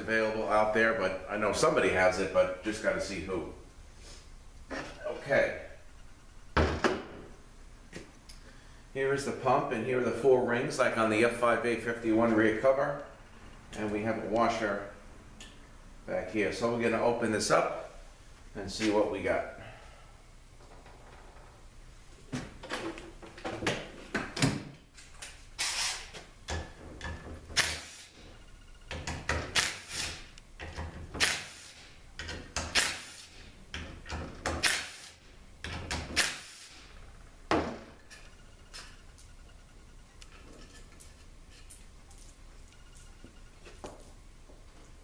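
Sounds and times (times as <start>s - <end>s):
impact driver bursts: 34.6s - 35.2s.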